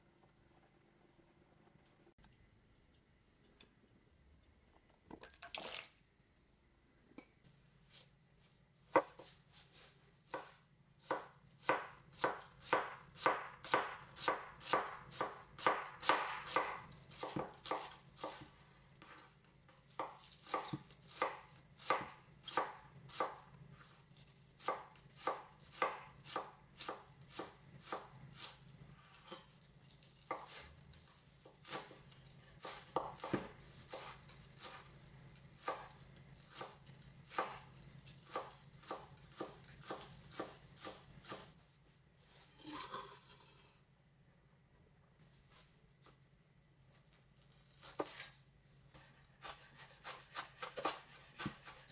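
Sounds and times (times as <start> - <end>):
knife chopping on wooden board: 8.9 - 9.4, 10.3 - 19.3, 19.9 - 23.9, 24.6 - 34.9, 35.6 - 41.5, 48.9 - 51.9.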